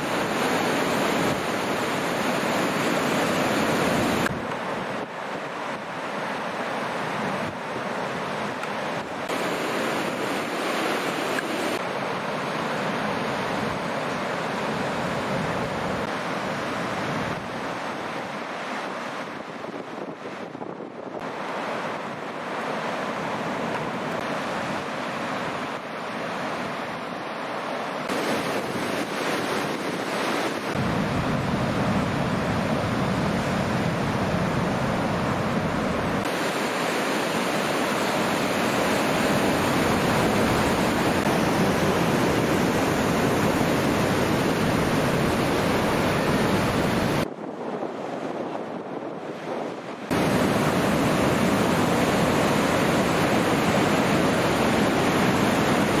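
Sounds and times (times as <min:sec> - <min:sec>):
ocean surf breaking: 0:00.0 - 0:56.0
wind buffeting microphone: 0:17.0 - 0:22.4, 0:28.0 - 0:36.4, 0:37.3 - 0:56.0.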